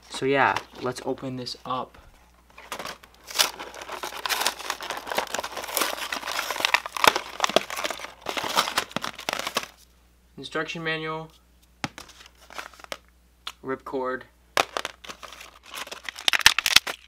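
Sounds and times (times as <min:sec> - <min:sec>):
plastic blister pack crinkling: 0:02.4 - 0:09.8, 0:14.6 - 0:17.0.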